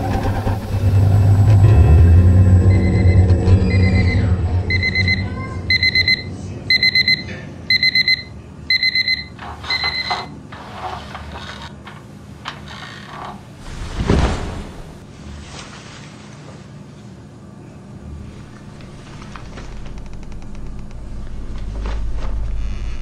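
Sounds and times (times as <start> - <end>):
digital alarm clock beeping: 2.6 - 10.3.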